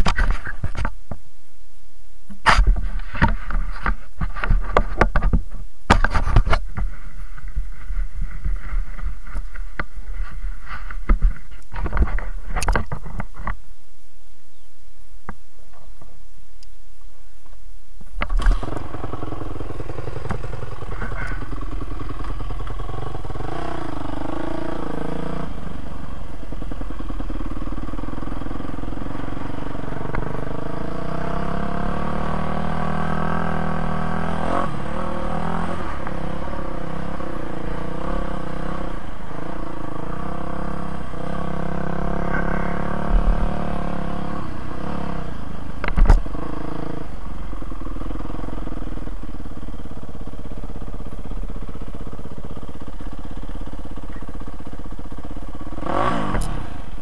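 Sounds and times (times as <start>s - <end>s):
motocross bike engine revving: 18.2s - 57.0s.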